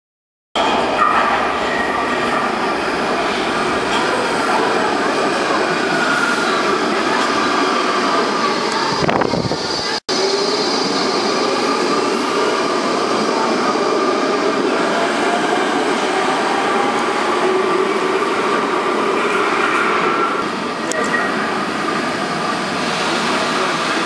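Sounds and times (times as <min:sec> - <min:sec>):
train rail rumble and wheel noise: 0:00.6 - 0:24.0.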